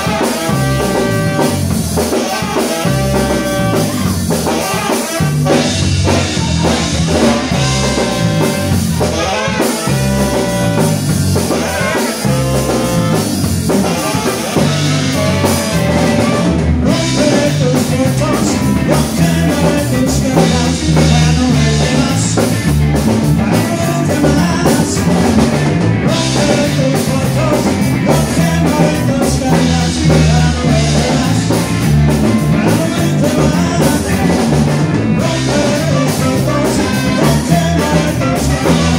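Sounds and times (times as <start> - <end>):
trumpet: 0.0 - 22.1, 35.2 - 38.9
drum kit: 0.0 - 38.9
electric bass: 0.0 - 38.9
electric guitar: 0.0 - 38.9
saxophone: 0.0 - 38.9
man singing into microphone: 11.4 - 38.9.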